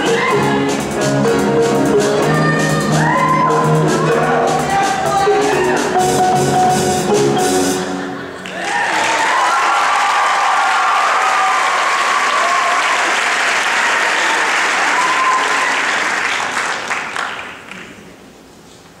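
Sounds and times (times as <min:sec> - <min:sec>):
audience applauding: 0:08.3 - 0:18.1.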